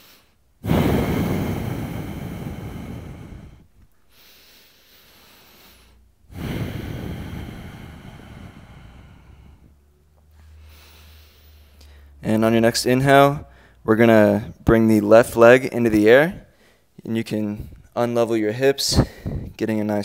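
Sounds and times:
loud exhales: 0.0s - 12.2s, 18.9s - 19.6s
man breathing heavily: 0.0s - 12.2s, 13.4s - 13.8s, 16.4s - 17.9s, 18.9s - 19.6s.

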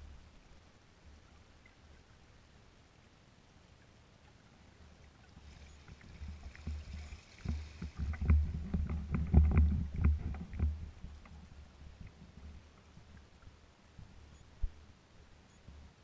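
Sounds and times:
small waves slapping kayak hull: 5.1s - 14.2s
low rumble: 5.6s - 13.3s
dull thumps and clicks: 6.5s - 13.3s.

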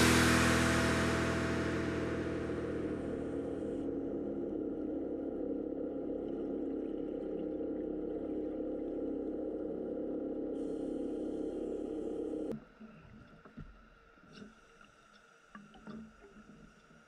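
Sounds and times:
background music: 0.0s - 5.2s
underwater boat motor hum: 0.0s - 12.5s.

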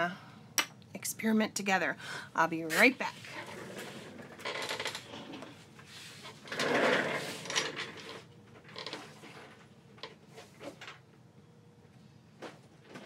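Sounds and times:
drawers sliding and clattering: 3.3s - 11.0s.

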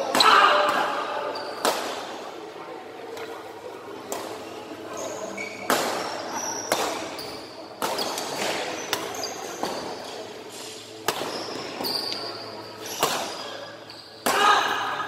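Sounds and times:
rackets hitting shuttlecock: 5.6s - 9.9s, 11.0s - 11.9s, 12.8s - 13.6s.

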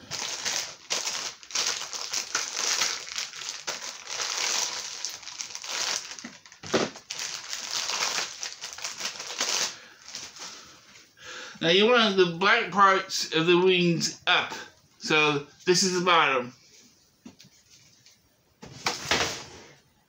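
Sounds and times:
plastic packaging crinkling: 0.0s - 10.7s.

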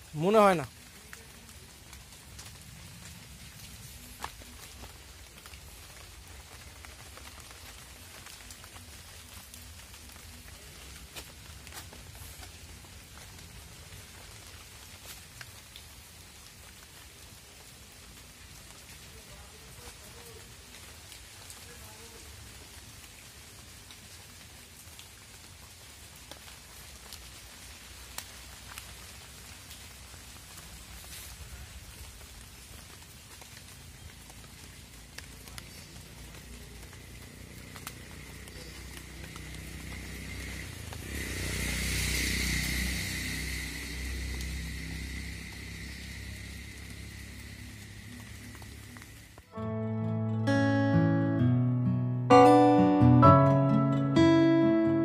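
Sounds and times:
light rain on leaves: 0.0s - 49.6s
raindrop ticks: 0.4s - 49.6s
steady hiss: 26.5s - 49.5s.

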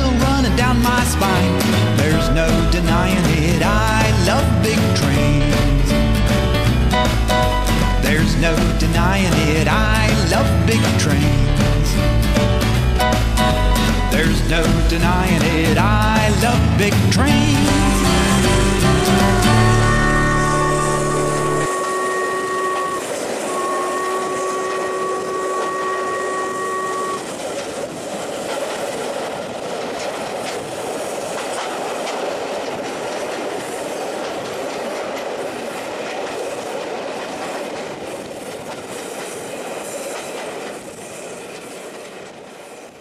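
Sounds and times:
train wheels clicking over rail joints: 0.0s - 43.0s
train whistle: 17.2s - 27.4s.

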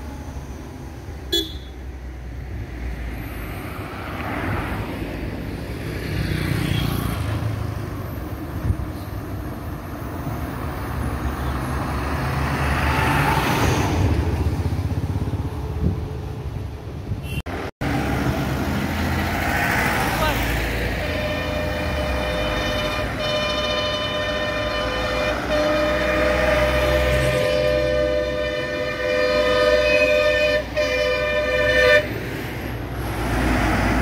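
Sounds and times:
road traffic passing: 0.0s - 34.0s
vehicle horn honking: 1.3s - 1.8s, 17.2s - 17.4s, 20.9s - 32.2s.

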